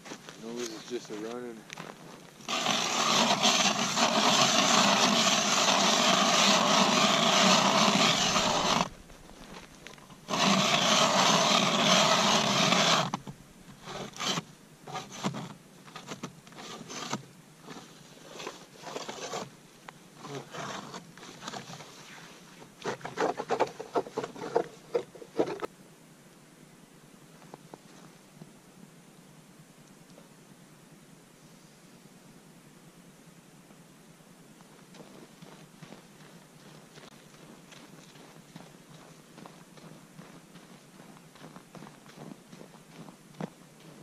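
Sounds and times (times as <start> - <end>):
ice auger grinding through ice: 2.4 - 19.5, 20.2 - 21.9
uneven scraping strokes: 2.4 - 19.5, 20.2 - 25.7.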